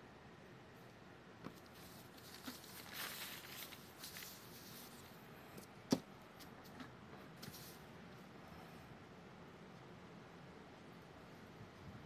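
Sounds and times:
paper rustling and sliding: 1.4 - 5.2, 6.6 - 7.8.

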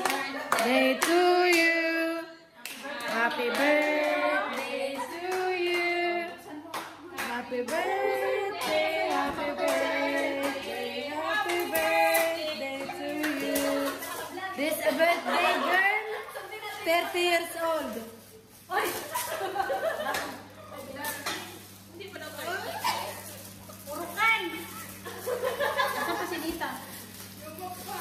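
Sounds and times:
hands clapping: 0.0 - 1.6, 6.7 - 7.9
group singing: 0.0 - 15.9.

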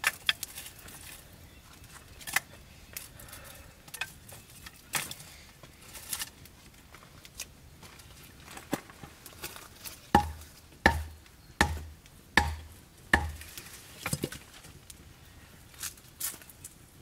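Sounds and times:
hatchet chopping into log: 10.2 - 13.5.

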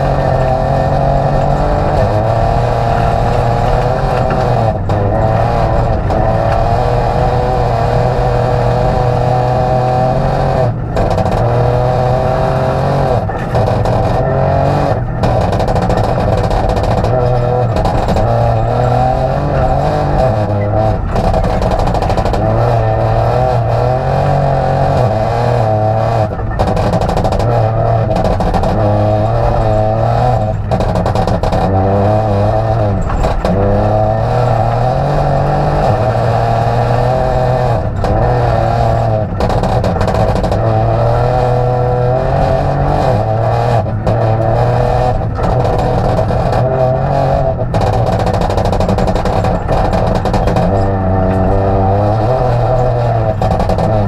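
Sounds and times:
car engine revving: 0.0 - 54.0
gravel under car: 0.0 - 54.0.

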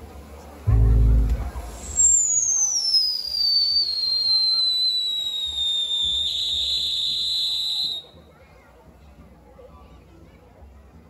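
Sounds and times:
whistling firework: 1.7 - 8.1.

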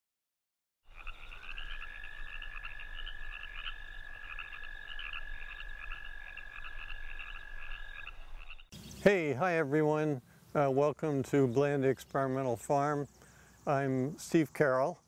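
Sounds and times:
long steady animal trill: 0.9 - 9.1.

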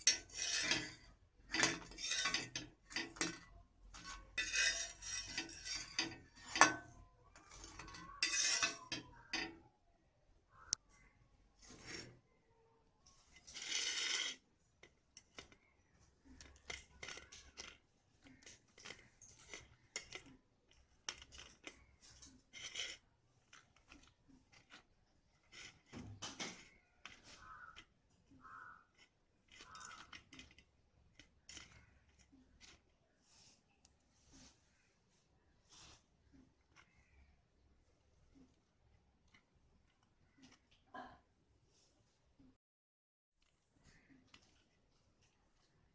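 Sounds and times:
utensils clinking on steel plate: 0.0 - 9.6, 16.3 - 24.8, 29.0 - 30.6
loud scraping: 0.1 - 9.1.

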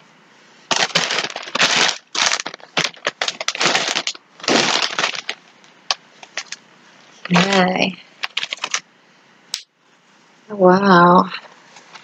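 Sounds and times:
packaging rustling and crinkling: 0.7 - 6.6, 7.2 - 8.8.

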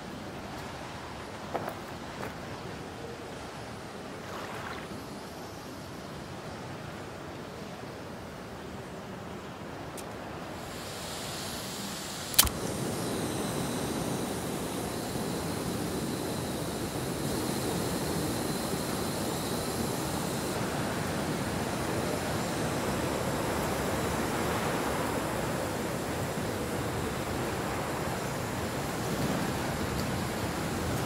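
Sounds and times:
steady wind: 0.0 - 31.0
sharp click: 12.2 - 12.7.

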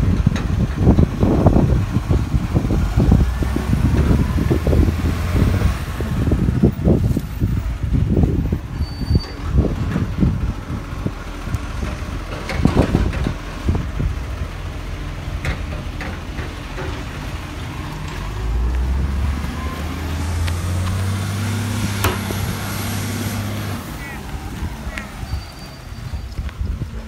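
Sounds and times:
garbage truck engine running: 0.0 - 26.8
low thumps: 20.1 - 23.8.

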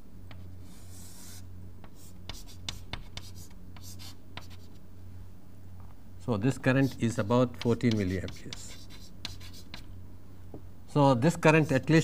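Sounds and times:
chalk writing on chalkboard: 0.3 - 4.8, 6.7 - 9.9.

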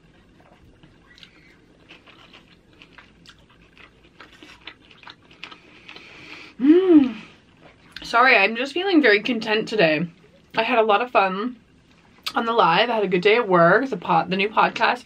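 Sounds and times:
chewing and mouth sounds: 0.0 - 8.1.

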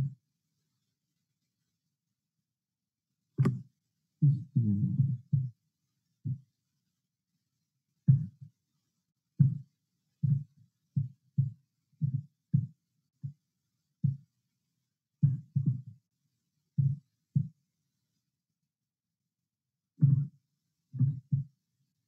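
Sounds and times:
man's voice breaking up: 4.6 - 5.0.

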